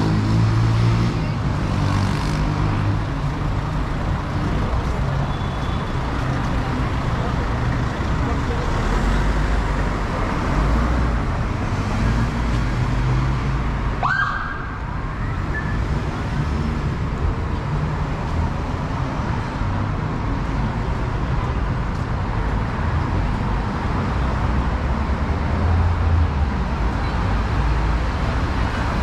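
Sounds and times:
city traffic rumble: 0.0 - 29.0.

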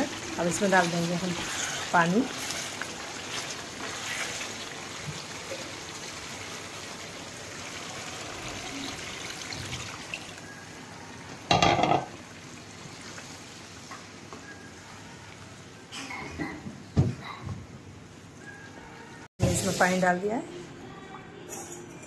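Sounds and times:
curry sizzling and bubbling: 0.0 - 15.9, 19.4 - 20.3.

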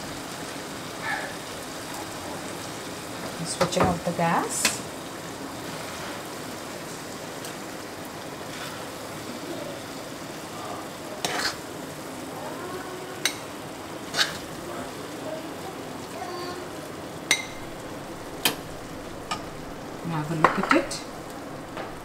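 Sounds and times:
faint sizzle: 0.0 - 22.0
spatula stirring food in wok: 5.6 - 12.2, 13.2 - 14.6.

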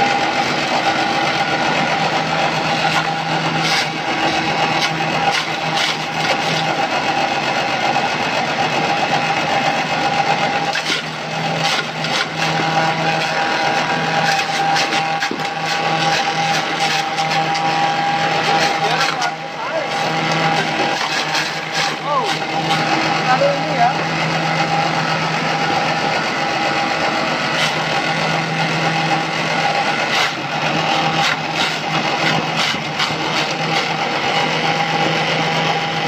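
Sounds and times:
electric chopping machines humming: 0.0 - 36.0.

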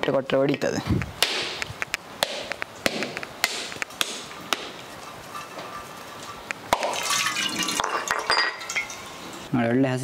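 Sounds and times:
knife knocking coconut shell: 1.2 - 4.8.

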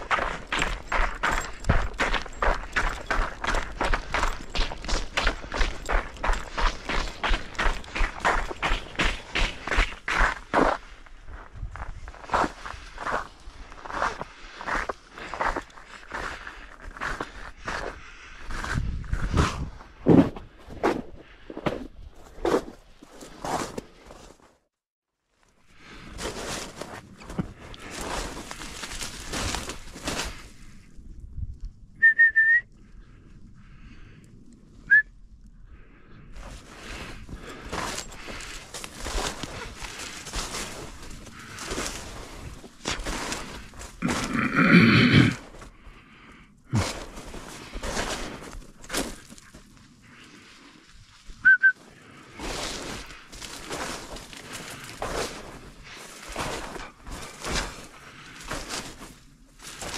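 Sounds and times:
footsteps rustling through brush: 0.0 - 17.8, 25.8 - 30.8, 36.4 - 44.7, 46.7 - 59.9
high whistle toots: 32.0 - 32.7, 34.9 - 35.1, 51.4 - 51.8.

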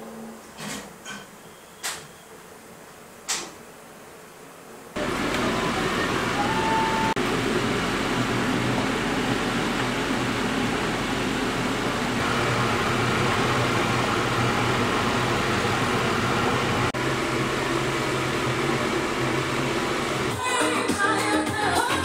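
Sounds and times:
machine hum: 4.9 - 20.5.

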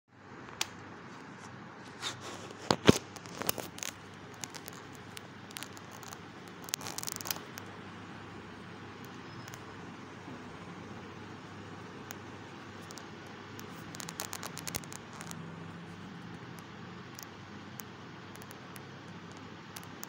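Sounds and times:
scraping on phone: 1.2 - 7.6.

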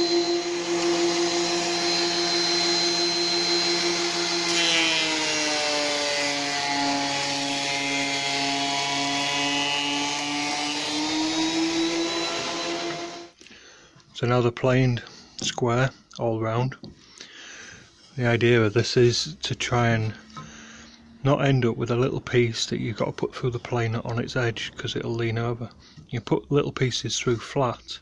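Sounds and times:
thickness planer motor whine: 0.0 - 13.4.

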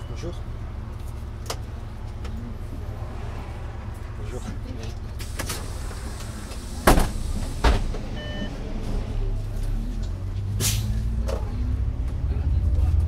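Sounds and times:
bus engine rumble: 0.0 - 13.0
air hiss: 5.2 - 7.9
short beep: 8.2 - 8.6.

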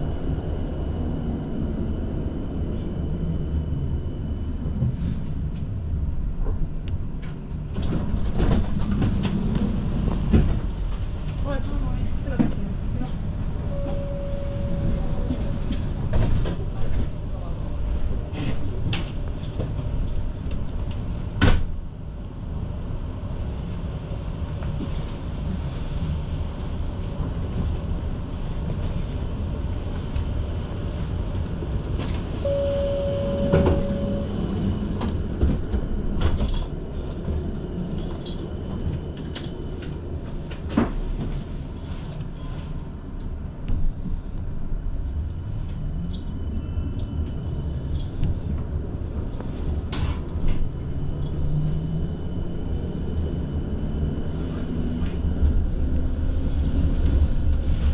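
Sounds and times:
tram rumble: 0.0 - 57.9
steady beep: 13.7 - 15.6, 32.4 - 34.4.

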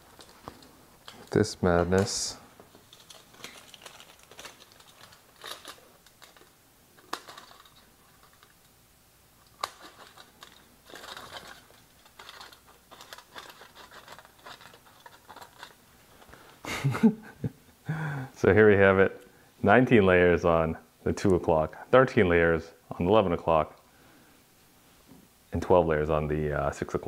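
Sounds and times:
foil crinkling and rustling: 0.0 - 8.6, 9.5 - 16.5.

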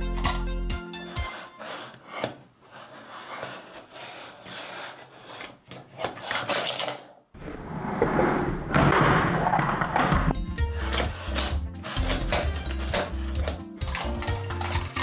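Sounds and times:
hands rubbing plastic toy: 1.0 - 7.1, 10.8 - 15.0.

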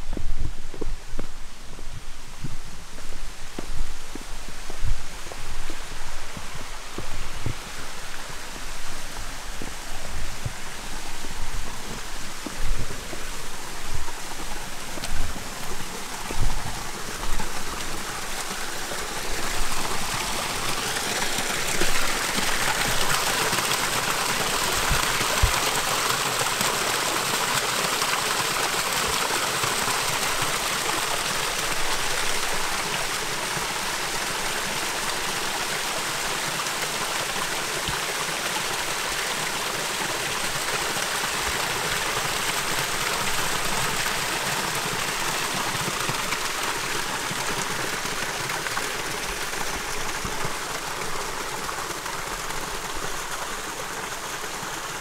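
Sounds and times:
running water rushing: 0.0 - 55.0.

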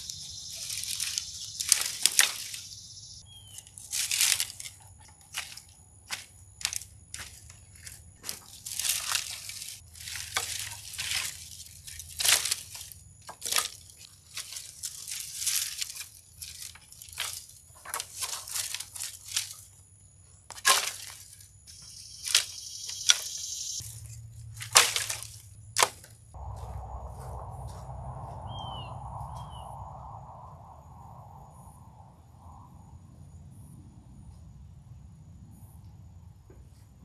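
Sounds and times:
dry branches snapping: 0.0 - 2.8, 3.5 - 19.7, 20.5 - 26.2.

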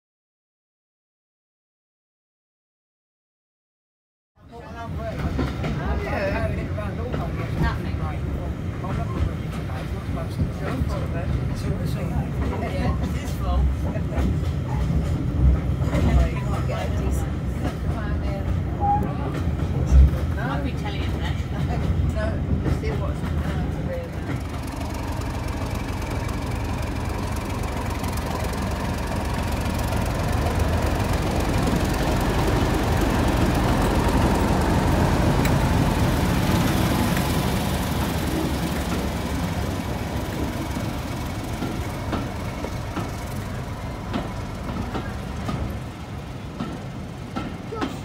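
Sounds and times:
diesel locomotive passing: 4.6 - 48.0
train wheels clicking over rail joints: 17.6 - 48.0.

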